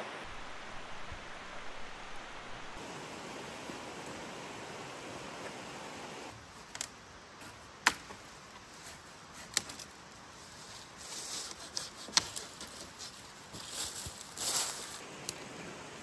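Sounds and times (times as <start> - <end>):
twigs and leaves rustling: 6.3 - 15.9
dry branches snapping: 7.8 - 8.2.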